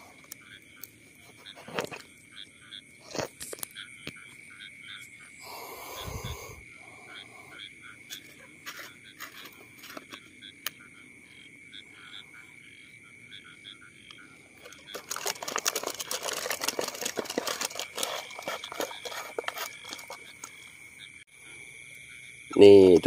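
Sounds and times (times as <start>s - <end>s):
frogs calling: 0.0s - 23.0s
high insect drone: 0.0s - 23.0s
plastic bottle crinkling: 3.0s - 3.7s, 8.1s - 10.2s, 14.6s - 20.6s.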